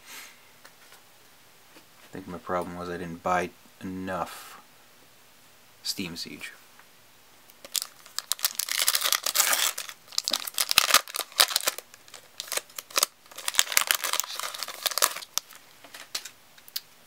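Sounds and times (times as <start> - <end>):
foil wrapper crinkling and tearing: 7.6 - 16.3.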